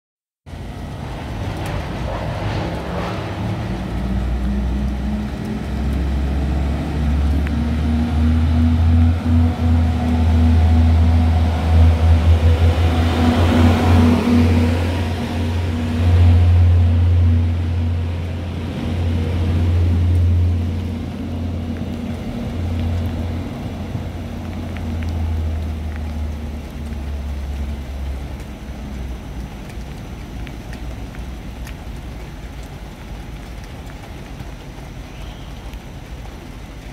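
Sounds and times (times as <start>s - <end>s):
train engine droning: 0.5s - 28.4s.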